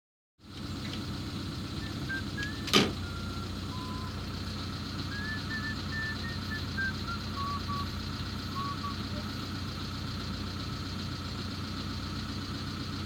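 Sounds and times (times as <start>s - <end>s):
vehicle engine humming: 0.4s - 13.0s
short high chirps: 1.8s - 4.2s, 5.1s - 9.3s.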